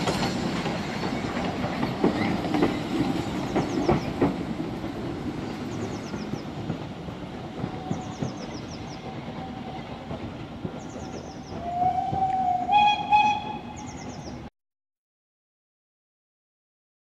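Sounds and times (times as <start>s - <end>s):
steam train rumbling on rails: 0.0s - 14.5s
steam whistle: 11.6s - 13.8s.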